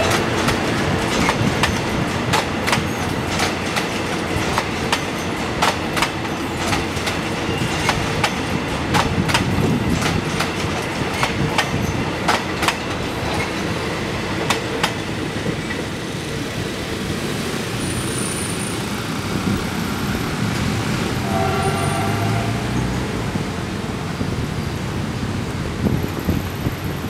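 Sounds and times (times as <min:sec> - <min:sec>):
wheels clicking over rail joints: 0:00.0 - 0:13.8
train rumble: 0:00.0 - 0:27.0
train horn: 0:21.2 - 0:23.1.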